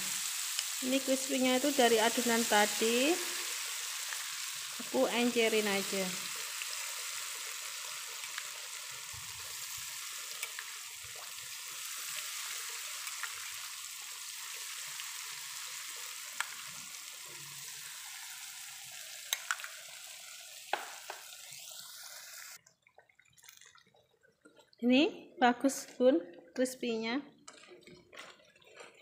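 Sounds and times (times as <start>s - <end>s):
food sizzling in hot oil: 0.0s - 22.6s.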